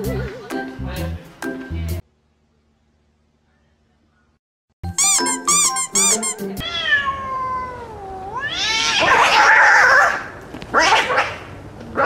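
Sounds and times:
cat meowing and yowling: 0:06.6 - 0:11.4.

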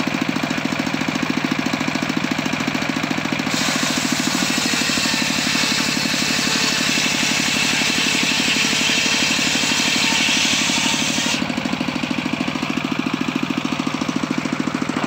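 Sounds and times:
engine running steadily: 0:00.0 - 0:15.0
circular saw cutting wood: 0:03.4 - 0:15.0.

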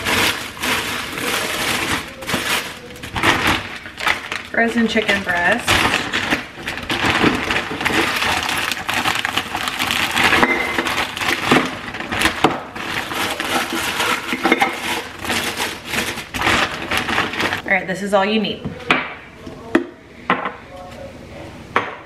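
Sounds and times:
frozen pieces knocking: 0:00.0 - 0:17.6
plastic bag crinkling: 0:00.0 - 0:17.7.

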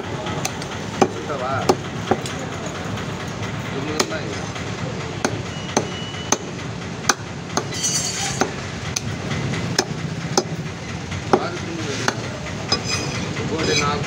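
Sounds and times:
steady background noise: 0:00.0 - 0:14.0
cleaver chopping meat and bone: 0:03.9 - 0:04.3, 0:05.2 - 0:09.1, 0:09.7 - 0:10.6.

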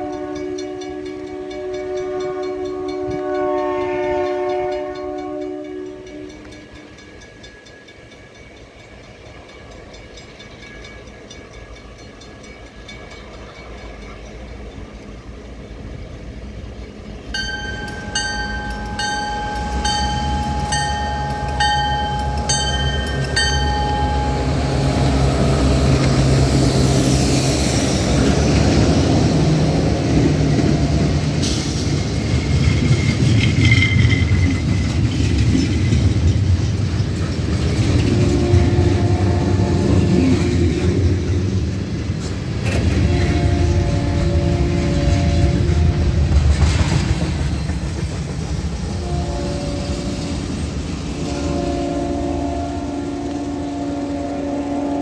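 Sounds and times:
locomotive bell ringing: 0:00.0 - 0:16.1, 0:16.9 - 0:26.0, 0:30.2 - 0:46.2
locomotive engine rumble: 0:09.4 - 0:55.0
freight cars rumbling and clattering: 0:11.1 - 0:51.2
high wheel squeal: 0:31.4 - 0:35.3.

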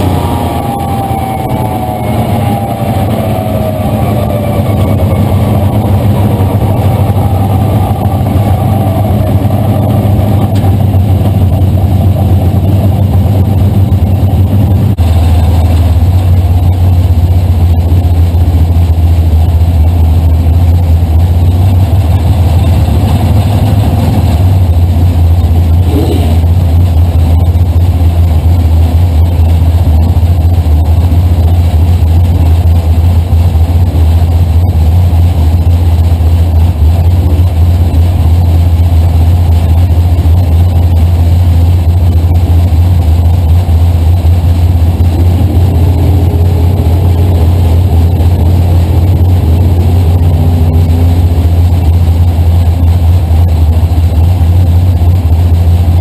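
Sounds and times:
race car engine rumbling: 0:00.0 - 0:56.0.

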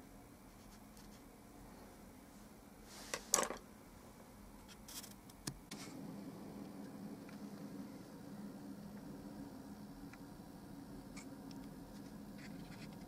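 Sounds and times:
paintbrush scraping paper: 0:00.5 - 0:01.3, 0:11.9 - 0:13.0.

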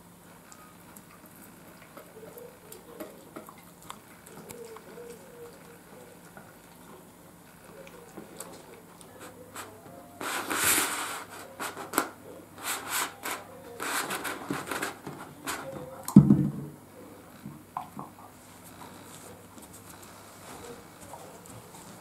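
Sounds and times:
dog chewing: 0:00.4 - 0:09.8, 0:17.2 - 0:22.0.

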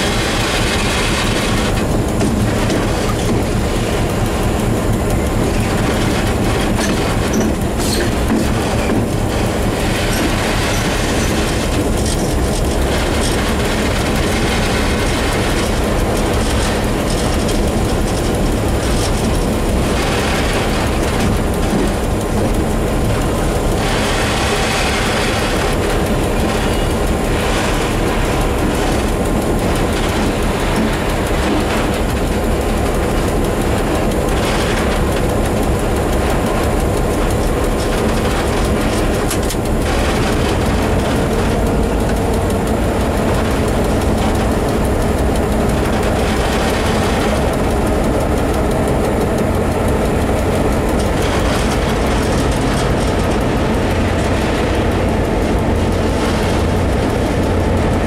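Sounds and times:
locomotive engine drone: 0:00.0 - 0:58.0
wheels on rails: 0:00.0 - 0:58.0.

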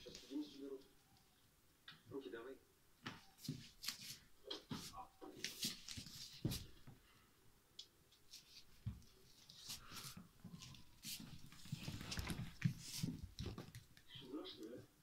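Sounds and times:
puppies scuffing on foam mats: 0:08.8 - 0:13.6.

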